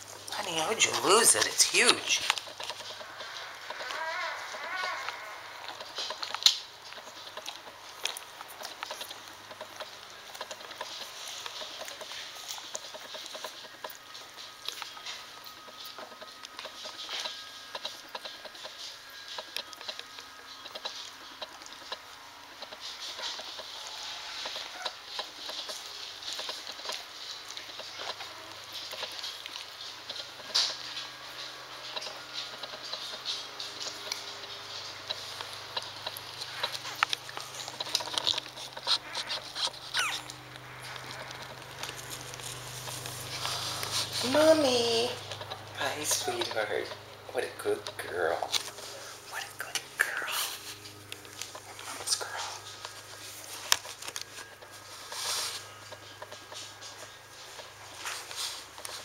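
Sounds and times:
puppy suckling: 0:32.0 - 0:44.6
puppy squeak: 0:38.8 - 0:40.4.

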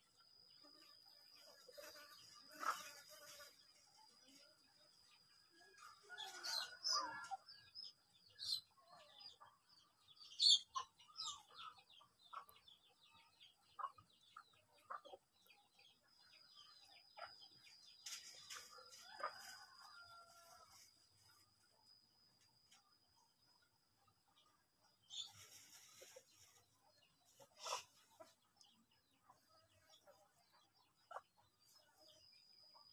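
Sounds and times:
chickens clucking: 0:01.8 - 0:03.9, 0:05.6 - 0:21.4, 0:24.4 - 0:32.2.

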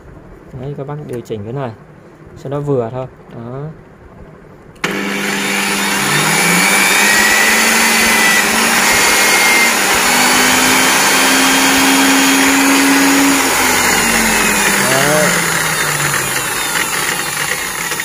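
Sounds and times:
electric motor running: 0:04.8 - 0:18.0.

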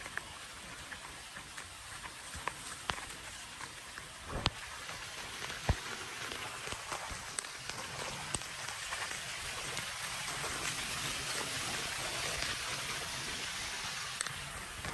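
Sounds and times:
rain on wet pavement: 0:04.3 - 0:14.9.

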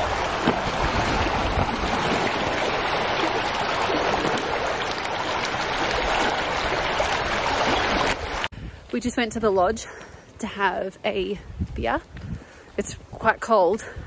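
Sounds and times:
waves lapping on rocks: 0:00.0 - 0:08.5
wind buffeting microphone: 0:00.0 - 0:09.9, 0:11.1 - 0:14.0.

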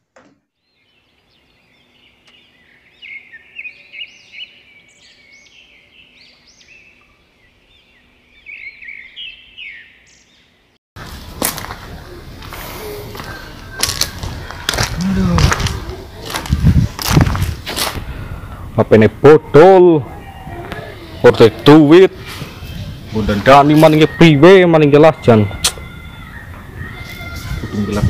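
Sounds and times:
outdoor noise: 0:00.0 - 0:28.0
small birds chirping: 0:00.6 - 0:17.2, 0:20.2 - 0:28.0
footsteps on gravel: 0:11.0 - 0:18.0.

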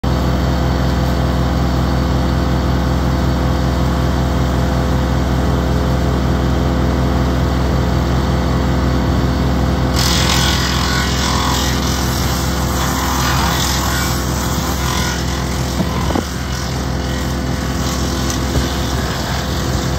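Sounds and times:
tractor diesel engine running: 0:00.0 - 0:19.9
rasping hiss of wood chipper: 0:09.3 - 0:19.9.

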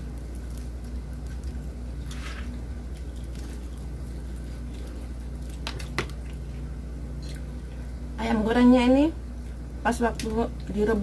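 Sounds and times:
people chewing: 0:00.0 - 0:08.0
steady low hum: 0:00.0 - 0:11.0.

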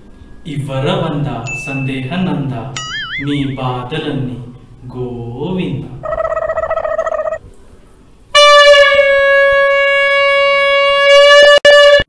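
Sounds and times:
plastic toy horn blast: 0:08.3 - 0:12.0.

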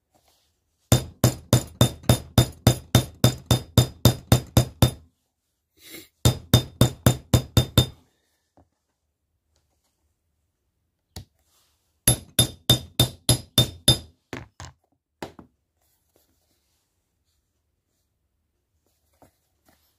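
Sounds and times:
hammer striking metal rivet setter: 0:01.0 - 0:05.0, 0:06.3 - 0:08.0, 0:12.1 - 0:14.1.

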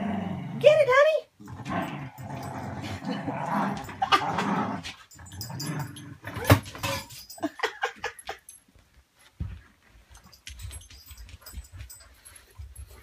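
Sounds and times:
dogs growling in play: 0:00.0 - 0:00.8, 0:01.4 - 0:07.1.

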